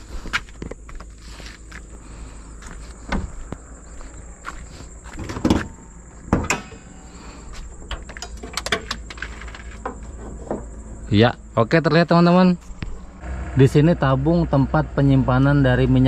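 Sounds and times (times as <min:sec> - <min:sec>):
high-pitched insect drone: 0:00.0 - 0:16.0
car bonnet latch clicks and knocks: 0:06.3 - 0:06.9, 0:07.8 - 0:09.2.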